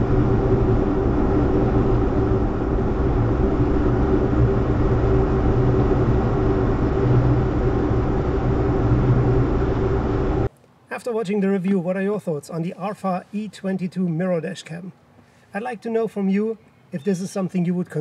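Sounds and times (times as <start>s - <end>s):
low engine drone: 0.0s - 10.5s.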